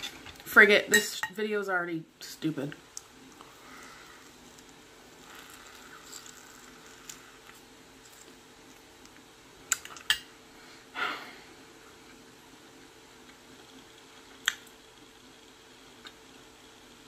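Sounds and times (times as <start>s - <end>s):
faint steady hum: 0.0s - 17.0s
quiet chewing: 3.0s - 10.1s.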